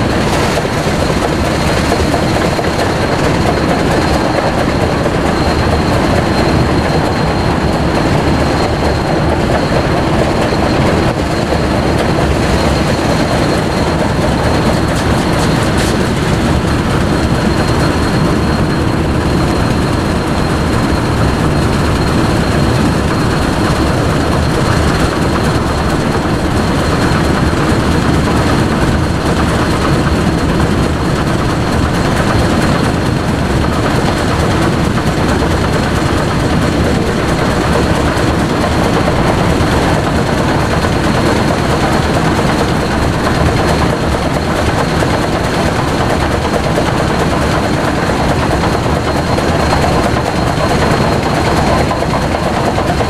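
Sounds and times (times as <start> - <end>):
road noise: 0.0 - 27.2
wind noise: 0.0 - 53.0.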